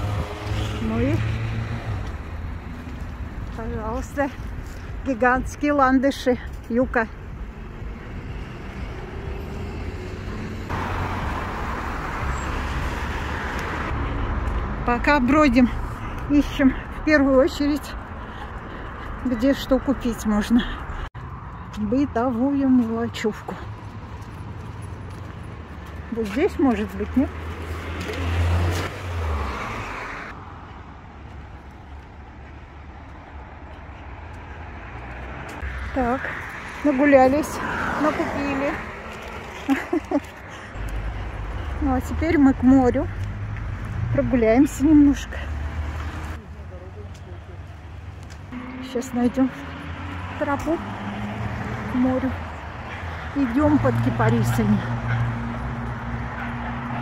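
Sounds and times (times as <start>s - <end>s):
road traffic noise: 0.0s - 57.0s
street background noise: 0.0s - 57.0s
car driving past: 48.5s - 57.0s.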